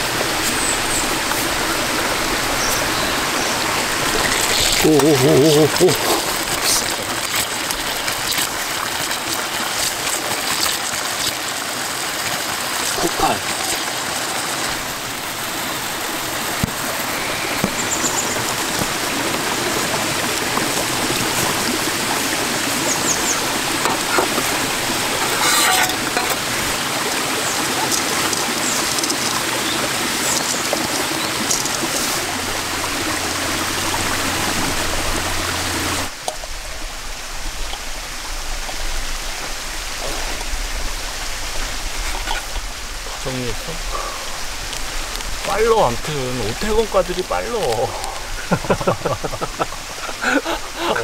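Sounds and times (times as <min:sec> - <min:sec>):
mountain stream rushing: 0:00.0 - 0:51.0.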